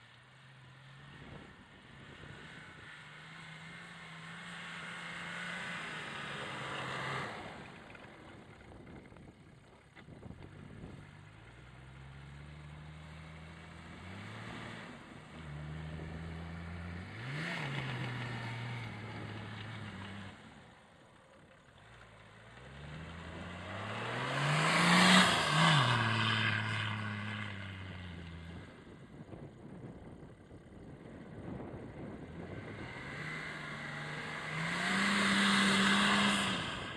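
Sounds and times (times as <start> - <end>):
tyres spinning in snow: 0.8 - 29.6, 30.4 - 36.9
diesel engine revving: 11.8 - 20.8, 21.9 - 29.0, 31.5 - 36.9.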